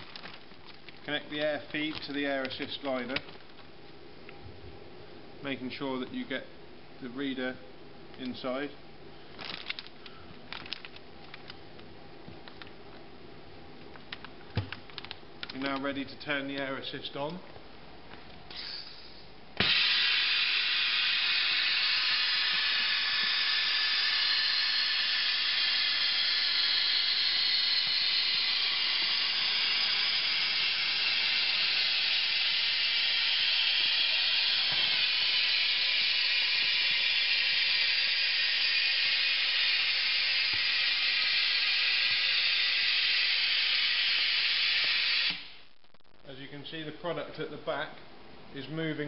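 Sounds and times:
compressed air hissing: 18.5 - 45.6.

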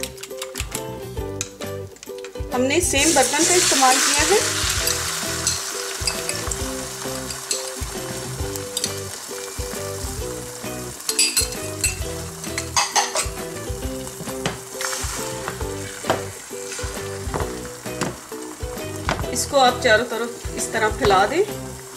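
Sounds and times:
soft background music: 0.0 - 21.9
eggs sizzling in hot oil: 2.6 - 21.9
spoon clicking against pan: 11.1 - 13.3.

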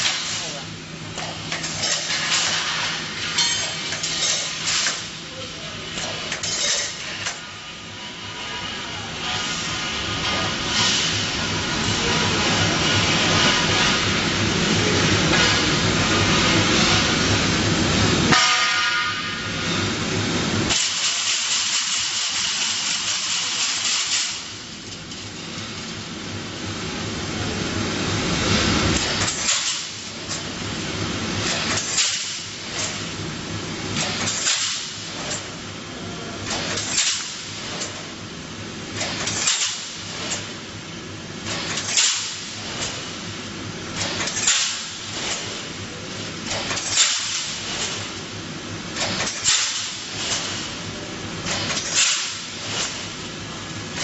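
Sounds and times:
welding machine humming: 0.0 - 54.0
machine clack with short hiss: 1.2 - 5.1, 20.7 - 24.5, 29.0 - 30.4, 31.4 - 33.0, 34.0 - 35.5, 36.5 - 38.0, 39.0 - 40.5, 41.4 - 43.1, 44.0 - 45.6, 46.4 - 48.1, 49.0 - 50.7, 51.4 - 53.1.

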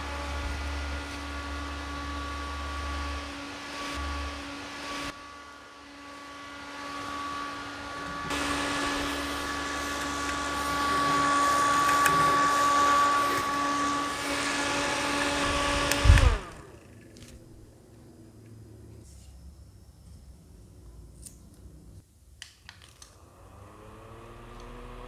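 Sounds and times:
fan motor spinning down: 0.0 - 17.6, 23.2 - 25.0
desk fan motor whining: 0.0 - 18.2, 23.2 - 25.0.

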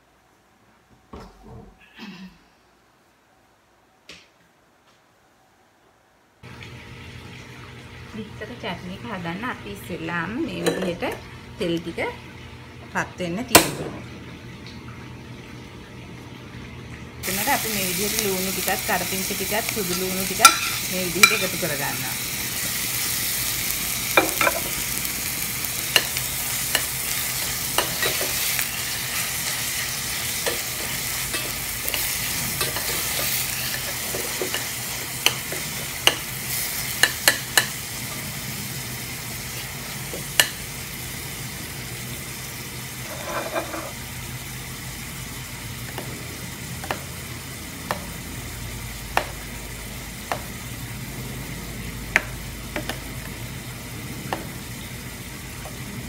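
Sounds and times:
onions sizzling in hot oil: 17.2 - 56.0
metal spoon clinking against pan: 20.4 - 21.5.

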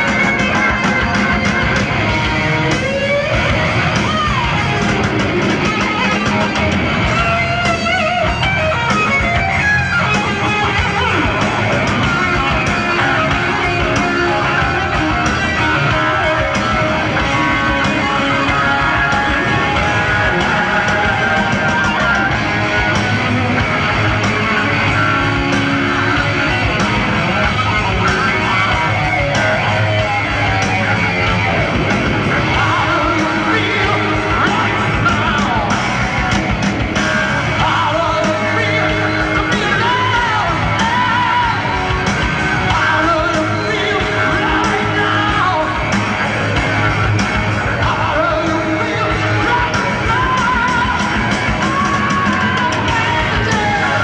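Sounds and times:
bass and drums: 0.0 - 54.0
electric guitar solo: 0.0 - 54.0.

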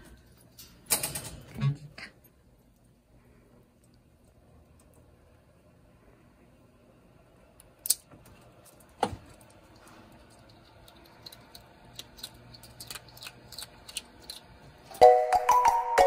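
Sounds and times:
monkey chewing crunchy treat: 8.7 - 15.0.

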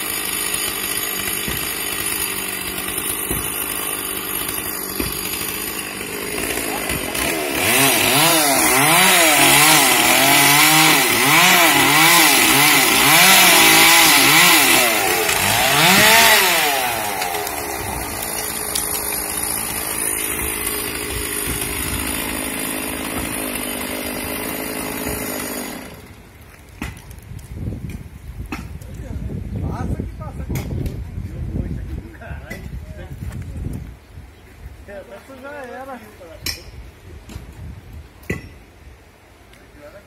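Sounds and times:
chainsaw cutting branch: 0.0 - 26.2.

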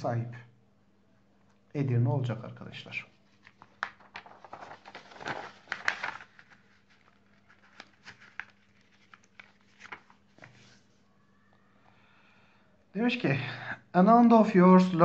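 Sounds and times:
paper rustling: 3.1 - 11.0.

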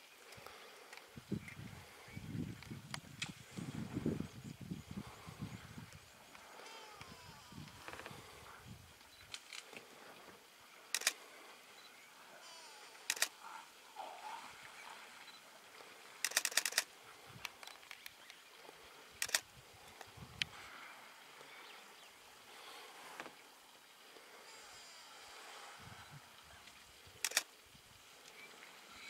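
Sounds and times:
camera shutter clicks: 11.0 - 11.2, 13.0 - 13.3, 16.2 - 16.9, 19.2 - 19.4, 27.2 - 27.5.

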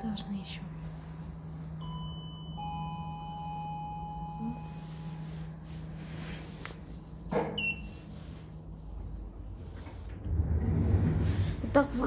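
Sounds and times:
low hum: 0.0 - 12.0
elevator chime: 1.7 - 5.6, 7.6 - 8.1.

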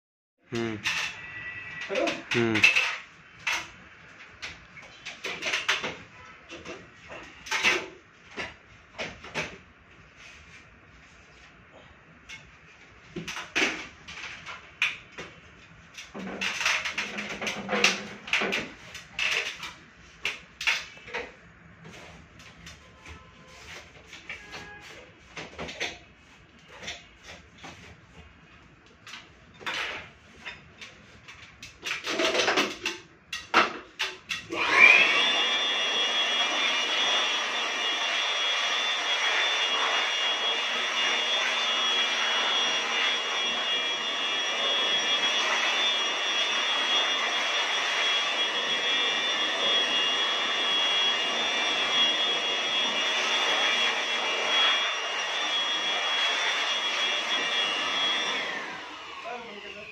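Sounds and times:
electric air blower whining: 34.5 - 59.9.

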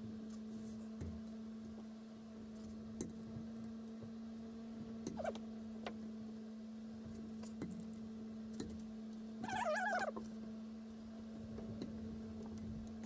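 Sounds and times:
steady electric hum: 0.0 - 13.0
brief squeak: 5.1 - 5.4.

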